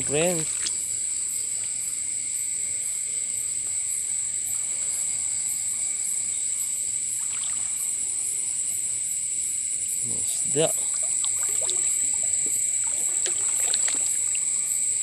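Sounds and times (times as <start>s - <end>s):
running stream water: 0.0s - 1.5s, 7.1s - 8.6s, 9.9s - 15.0s
crickets chirping chorus: 0.0s - 15.0s
fast pulsing insect trill: 0.0s - 15.0s.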